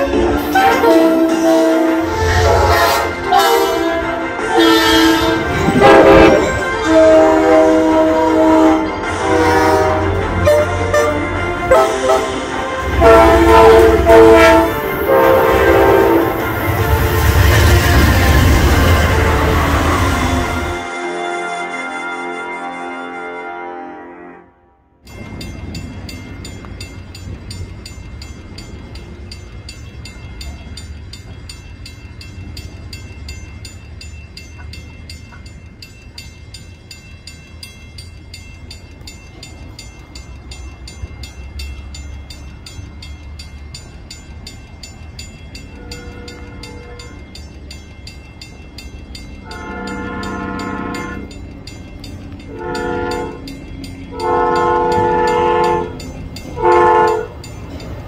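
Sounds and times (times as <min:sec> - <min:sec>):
crossing bell ringing: 0:00.0 - 0:24.4, 0:25.0 - 0:58.0
train horn: 0:00.0 - 0:25.0, 0:45.7 - 0:47.2, 0:49.4 - 0:51.3, 0:52.5 - 0:53.5, 0:54.1 - 0:56.0, 0:56.6 - 0:57.4.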